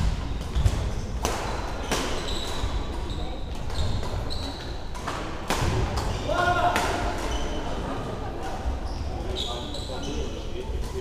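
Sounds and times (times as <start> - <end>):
rackets hitting shuttlecock: 0.0 - 7.6
shoes squeaking on court floor: 0.3 - 5.3, 7.1 - 8.1, 8.8 - 11.0.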